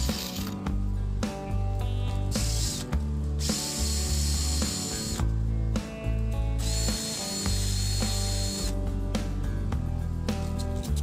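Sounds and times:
background music: 0.0 - 11.0
cordless drill whining: 2.4 - 5.3, 6.6 - 8.8.

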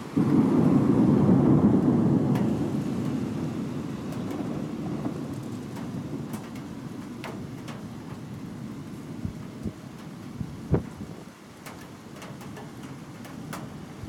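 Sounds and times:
thunder rumbling: 0.0 - 11.2
steady rain: 0.0 - 14.0
raindrop ticks: 1.8 - 3.2, 4.1 - 14.0.

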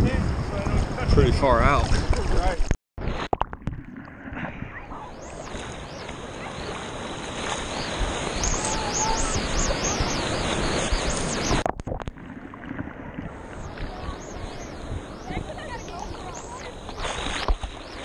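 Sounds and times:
wave breaking: 1.6 - 18.0
ocean surf rushing: 4.8 - 11.6, 13.0 - 18.0.

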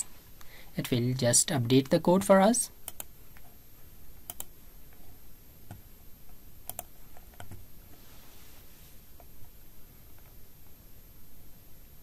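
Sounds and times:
computer mouse clicks: 2.8 - 3.6, 4.3 - 4.5, 6.6 - 7.6.

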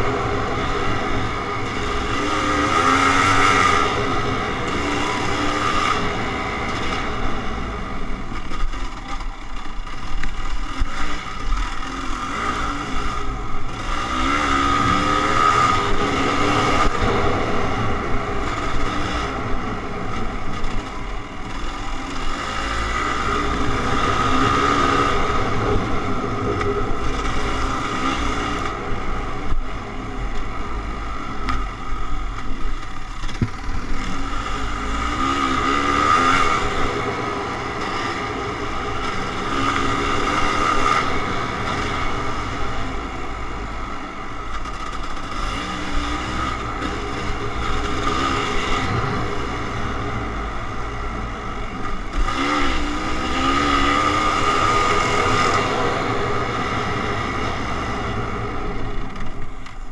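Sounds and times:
dirt bike engine revving: 0.0 - 59.3.

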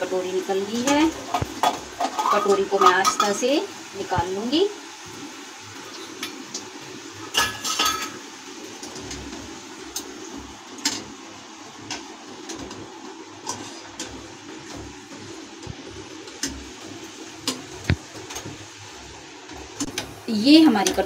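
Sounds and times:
hot oil hissing: 0.0 - 21.0
metal tongs clinking on pan: 7.3 - 8.2.

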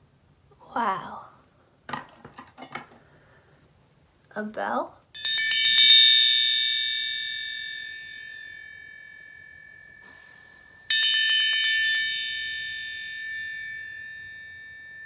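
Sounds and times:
small brass bell jingling: 5.1 - 15.0.

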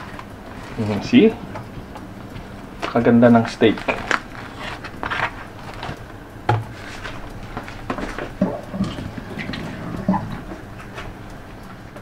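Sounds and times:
plastic tray and wrap rustling: 2.8 - 10.4.

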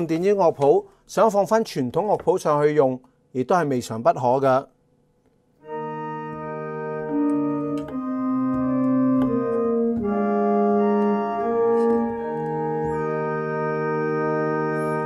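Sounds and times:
pipe organ chords: 5.6 - 15.0.

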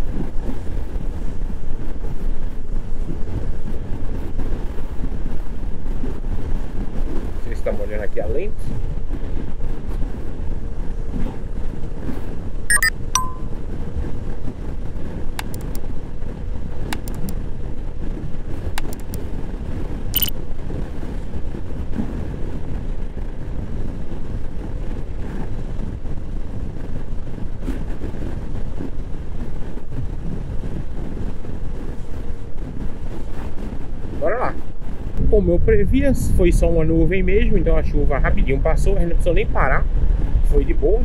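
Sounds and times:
wind and road noise: 0.0 - 41.0
sharp clicks: 12.7 - 13.4, 15.4 - 15.8, 17.0 - 17.4, 18.8 - 19.2.

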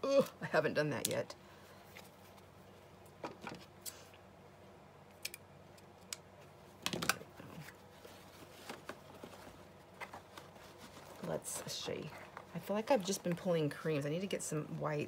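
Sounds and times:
craft materials rustling: 7.0 - 13.7.

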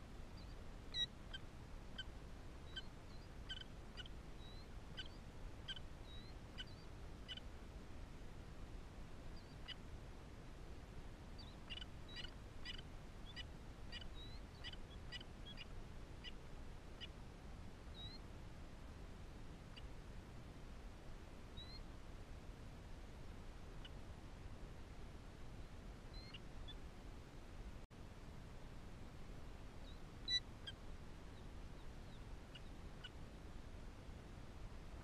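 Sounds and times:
chicks peeping faintly: 0.0 - 7.7, 8.8 - 17.2, 23.0 - 27.4, 28.8 - 35.0.

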